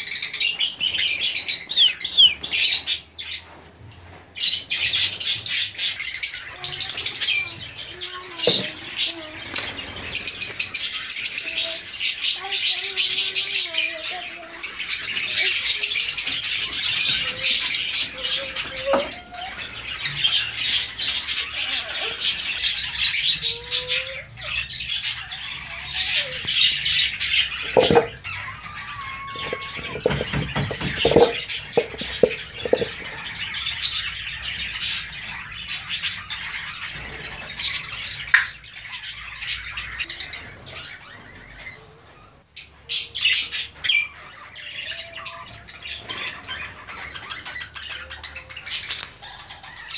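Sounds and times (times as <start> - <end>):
parrots chattering and squawking: 0.0 - 49.9
knocks: 27.7 - 28.2, 29.4 - 33.2.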